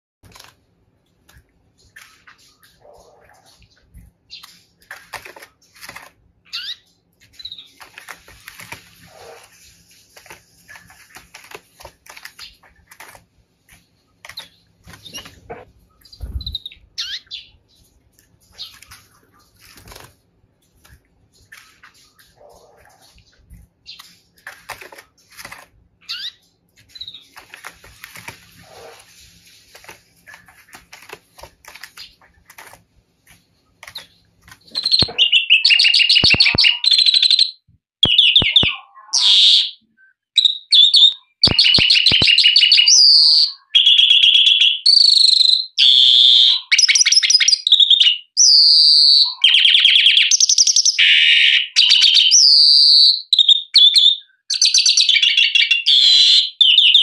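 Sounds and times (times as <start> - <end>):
faint clicks and rustling: 0.2 - 16.6, 17.7 - 25.8, 26.4 - 35.2.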